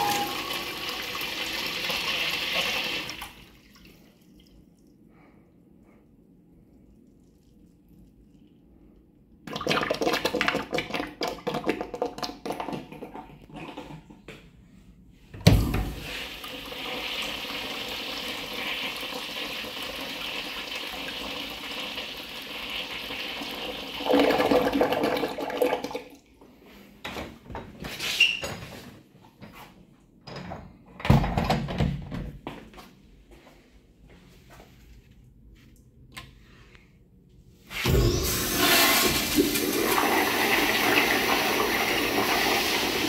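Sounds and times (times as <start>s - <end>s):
urinal flush clunk: 0.0s - 1.0s, 37.8s - 43.0s
flushing water rushing: 37.9s - 43.0s.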